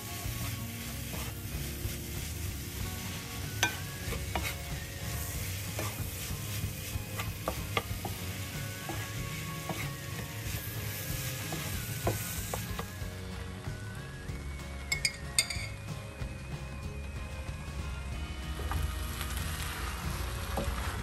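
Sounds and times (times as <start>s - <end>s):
spatula scraping and tapping pan: 0.0s - 13.0s
frying sizzle: 0.0s - 21.0s.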